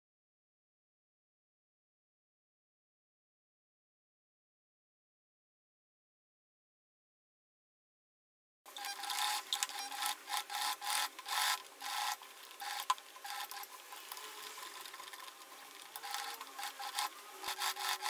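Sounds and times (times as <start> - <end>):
sewing machine stitching: 8.8 - 18.0.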